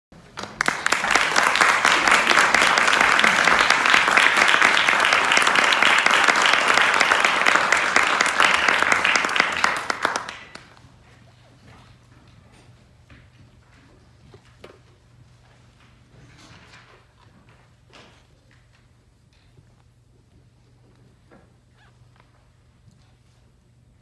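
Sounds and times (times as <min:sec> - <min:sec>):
audience applauding: 0:00.2 - 0:11.0.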